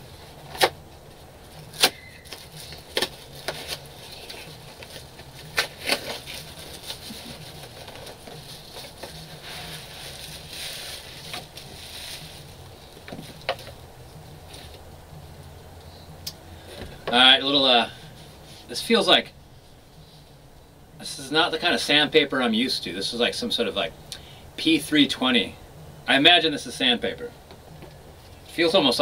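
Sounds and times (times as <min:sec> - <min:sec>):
paper packaging rustling: 0:01.5 - 0:13.8.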